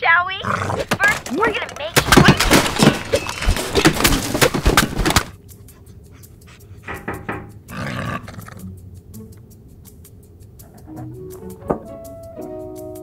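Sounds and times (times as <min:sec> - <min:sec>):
rapid rustling and clattering: 0:00.8 - 0:07.4
dog panting: 0:05.4 - 0:08.6.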